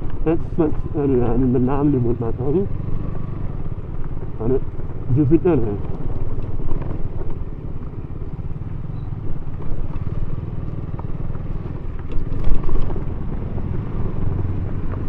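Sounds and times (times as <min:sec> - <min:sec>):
motorcycle engine low rumble: 0:00.0 - 0:15.0.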